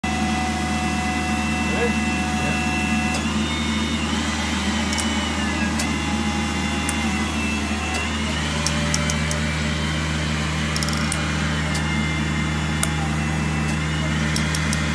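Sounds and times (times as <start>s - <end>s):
hydraulic pump humming: 0.0s - 14.9s
wrench head clicks: 8.6s - 9.4s, 10.8s - 11.2s, 14.4s - 14.8s.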